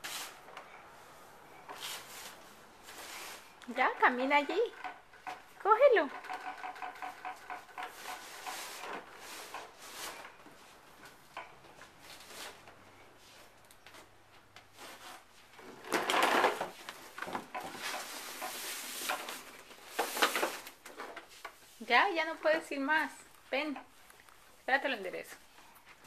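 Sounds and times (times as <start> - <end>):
rustling scrape: 0.0 - 3.6, 7.8 - 10.8, 12.0 - 13.6, 14.7 - 22.9
clicks and rattles: 4.5 - 9.6
toy lawn mower rolling on carpet: 15.6 - 21.6.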